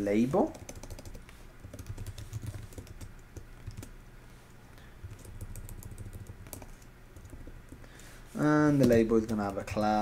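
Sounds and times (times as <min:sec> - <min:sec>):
computer keyboard typing: 0:00.5 - 0:03.9, 0:05.0 - 0:07.8.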